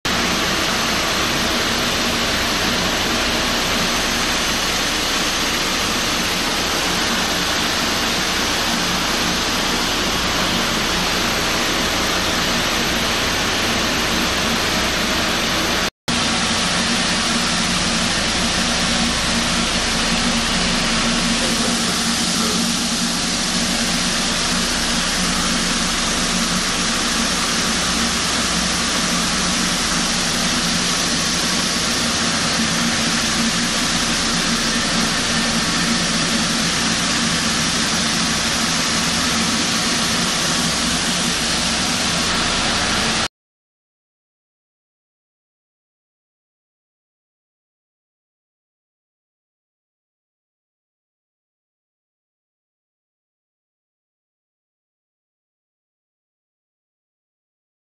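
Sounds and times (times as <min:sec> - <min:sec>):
polishing machine rattling: 0:00.1 - 0:43.3.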